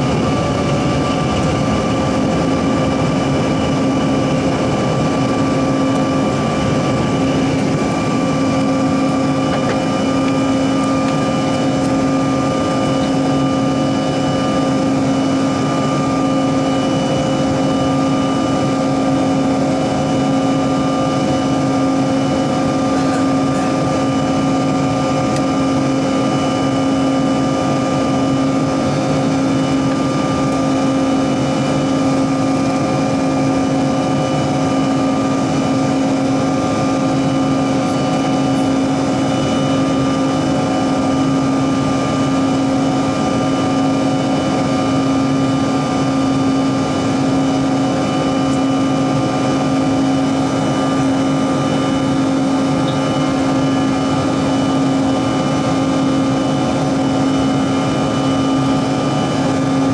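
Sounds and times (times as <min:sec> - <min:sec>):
jet engine whining tones: 0:00.0 - 0:59.9
low engine drone: 0:00.0 - 0:59.9.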